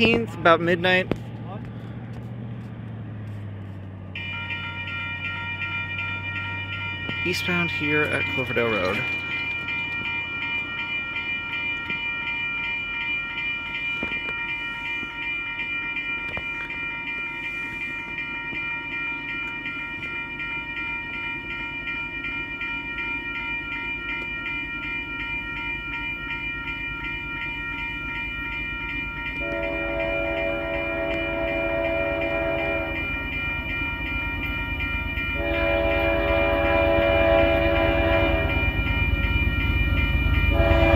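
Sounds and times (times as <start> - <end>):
crossing warning bell ringing: 0.0 - 40.9
low rumble of train: 0.0 - 40.9
train horn: 29.4 - 33.1, 35.4 - 38.8, 40.5 - 40.9.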